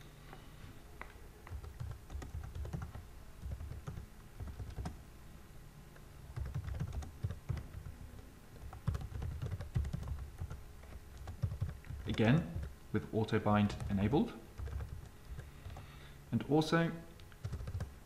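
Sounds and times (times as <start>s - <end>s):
typing on computer keyboard: 1.5s - 5.0s, 6.4s - 12.8s, 13.7s - 15.8s, 17.3s - 17.9s.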